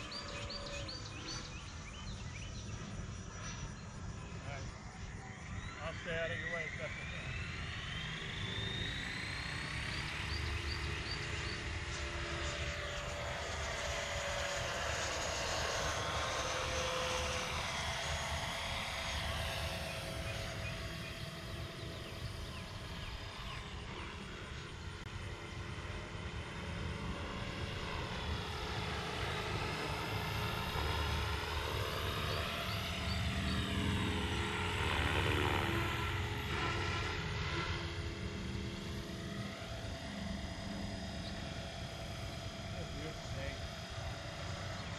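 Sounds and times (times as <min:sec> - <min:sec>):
electric ducted fan whine: 0:00.0 - 0:44.9.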